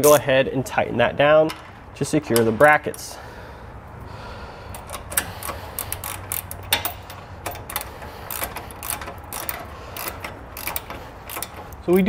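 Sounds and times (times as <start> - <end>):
ratchet clicking: 4.7 - 12.0.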